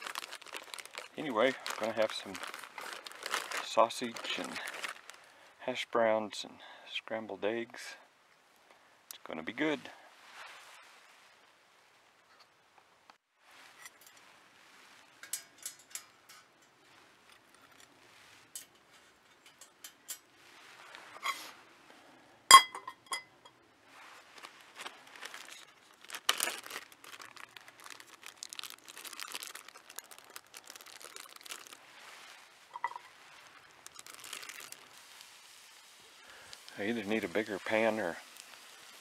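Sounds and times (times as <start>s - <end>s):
wood fire crackling: 0.0s - 5.6s, 24.0s - 39.0s.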